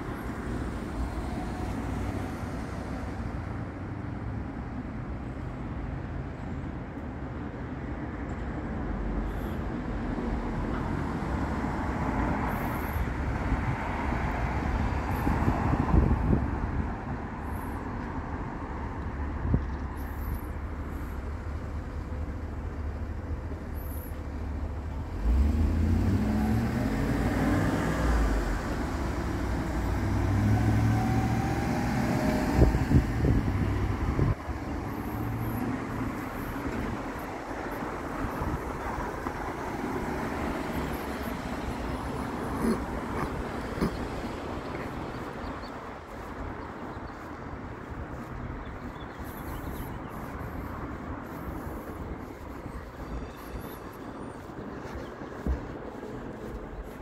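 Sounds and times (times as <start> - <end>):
rumble of passing cars: 0.0 - 57.0
engine accelerating through gears: 25.1 - 33.6.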